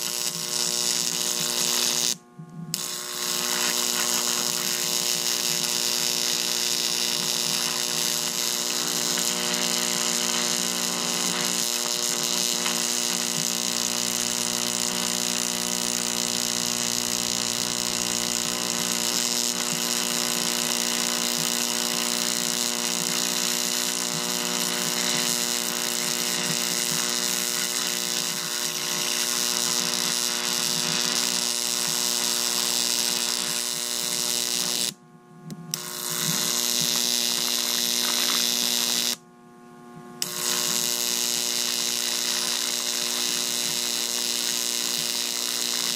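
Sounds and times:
electric arcs buzzing and sizzling: 0.0 - 35.0, 35.7 - 39.2, 40.1 - 45.9
electrical hum: 0.0 - 45.9.

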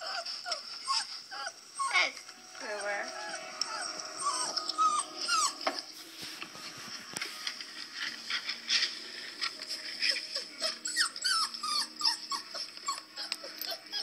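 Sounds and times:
puppies squealing and whimpering: 0.0 - 6.0, 9.7 - 14.0.

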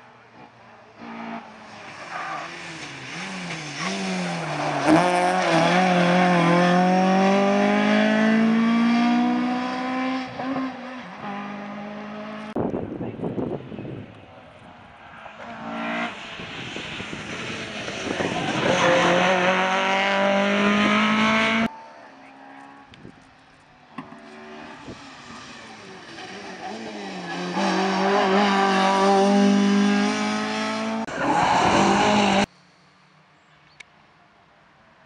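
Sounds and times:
rally car engine revving: 1.0 - 12.6, 15.3 - 22.9, 24.0 - 32.5.

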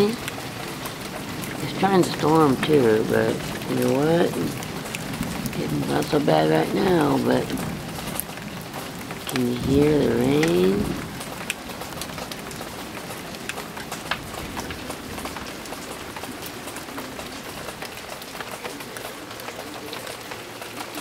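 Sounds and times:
steady rain falling: 0.0 - 21.0.

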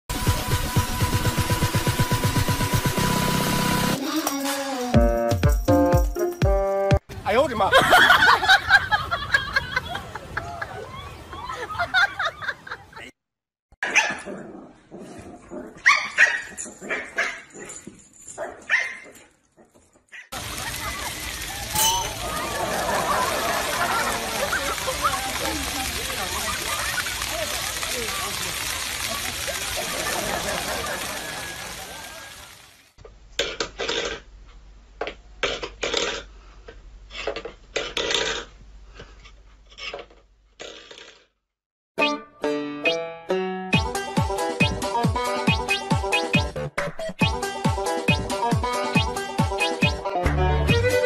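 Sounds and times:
dog barking and yipping: 13.8 - 14.3, 15.6 - 20.4
metal bowl scraping on wooden floor: 37.1 - 41.2.

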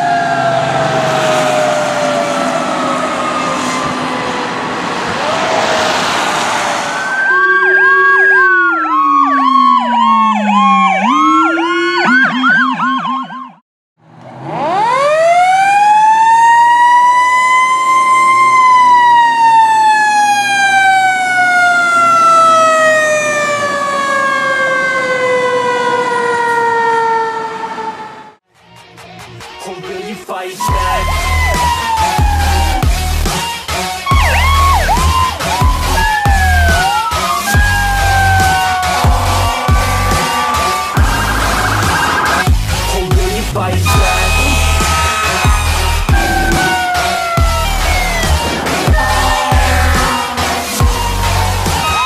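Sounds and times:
road noise: 0.0 - 11.4, 14.0 - 28.5, 30.5 - 52.0
electronic siren warbles and sweeps: 0.0 - 13.6, 30.6 - 52.0
siren winding up and falling: 0.0 - 13.6, 14.4 - 28.4, 30.6 - 33.3, 34.0 - 42.9, 43.8 - 52.0
fire engine siren: 0.0 - 28.4, 30.6 - 52.0.

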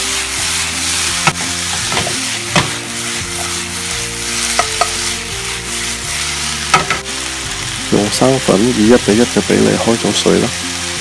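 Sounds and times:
spatula scraping a pan: 0.0 - 7.0
vegetables sizzling in frying pan: 0.0 - 11.0.

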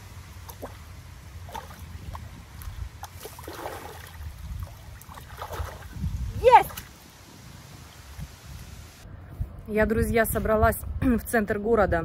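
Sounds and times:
water sloshing around legs: 0.4 - 7.2.

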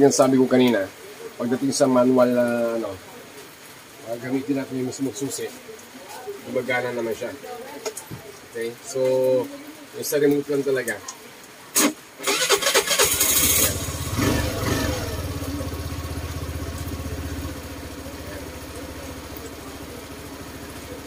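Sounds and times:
electric starter cranking: 12.2 - 15.0
scooter engine revving and idling: 12.9 - 21.0.

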